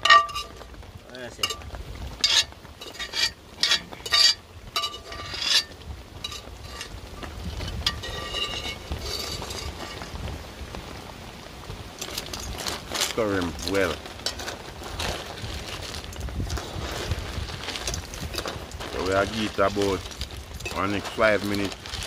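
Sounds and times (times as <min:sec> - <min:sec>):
metal spoon scraping pots: 0:00.0 - 0:00.6, 0:02.2 - 0:10.1, 0:20.6 - 0:21.6
steady sizzling hiss: 0:00.0 - 0:22.0.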